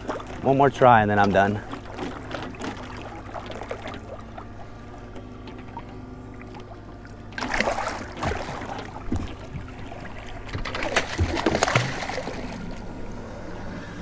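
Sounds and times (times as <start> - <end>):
shark splashing at surface: 10.7 - 12.6.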